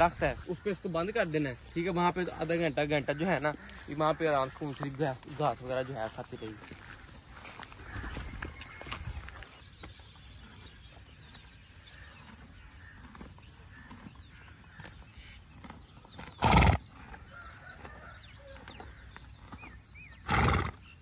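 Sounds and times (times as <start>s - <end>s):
horse grazing: 0.0s - 21.0s
horse snorting: 12.0s - 17.2s, 19.6s - 20.8s.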